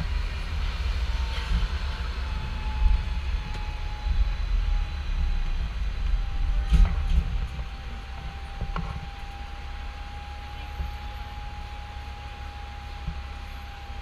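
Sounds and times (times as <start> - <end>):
tram rumble with faint whine: 0.0 - 14.0.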